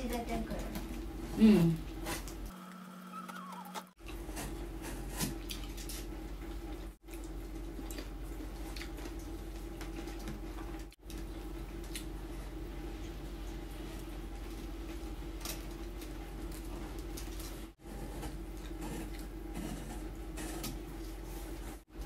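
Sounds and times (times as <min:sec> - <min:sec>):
person chewing food: 0:04.0 - 0:12.2
steady low hum: 0:04.0 - 0:22.0.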